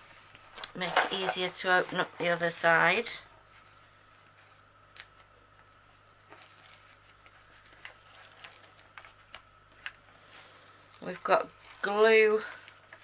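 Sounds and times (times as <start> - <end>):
plastic sheet crinkling: 4.9 - 13.0.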